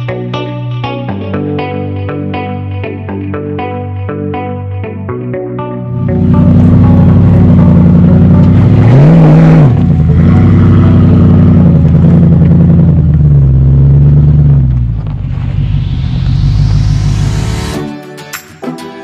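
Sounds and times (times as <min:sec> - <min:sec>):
engine pulling under load: 0:06.2 - 0:17.8.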